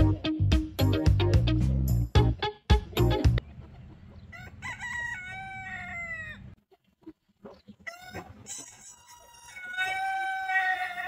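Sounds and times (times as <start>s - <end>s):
hen clucks: 3.4s - 11.0s
rooster crowing: 4.3s - 6.5s, 7.9s - 11.0s.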